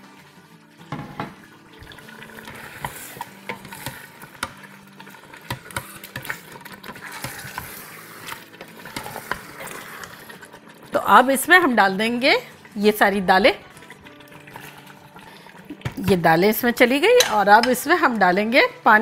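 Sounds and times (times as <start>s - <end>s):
wet sizzle: 0.0s - 19.0s
spoon knocking against pot: 0.9s - 1.4s, 17.2s - 17.8s.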